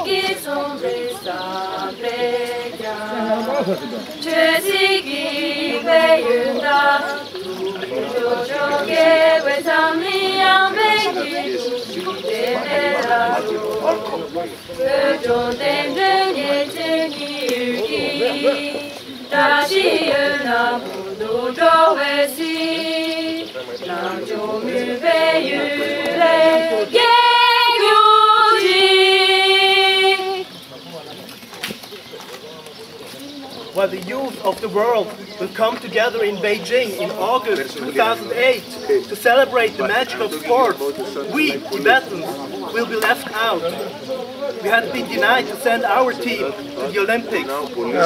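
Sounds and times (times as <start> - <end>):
women singing unaccompanied: 0.0 - 30.6.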